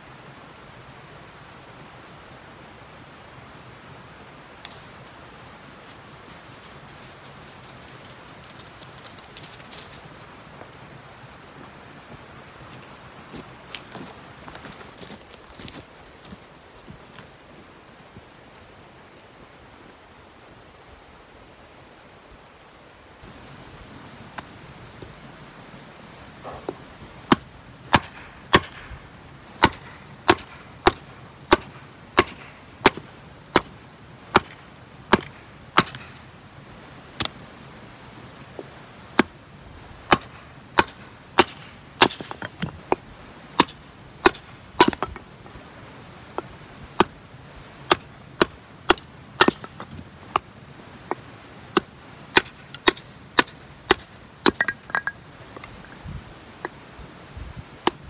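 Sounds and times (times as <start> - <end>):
hatchet knocking through wood: 29.6 - 33.0.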